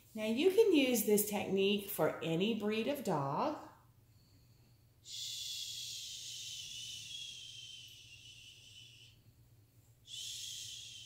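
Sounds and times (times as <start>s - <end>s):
woman shushing: 5.1s - 8.5s, 10.1s - 11.0s.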